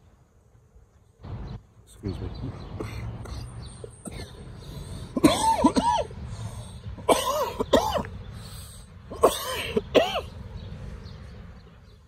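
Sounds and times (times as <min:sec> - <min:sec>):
man coughing: 0:02.8 - 0:04.5, 0:05.2 - 0:06.2, 0:07.1 - 0:08.1, 0:09.1 - 0:10.3.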